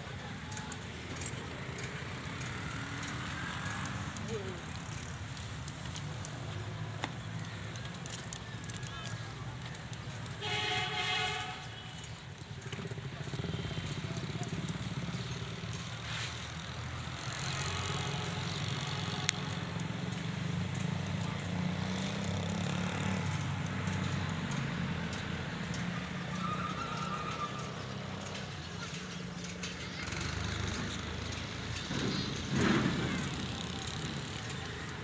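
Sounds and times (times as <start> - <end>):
locomotive horn: 10.3 - 12.1.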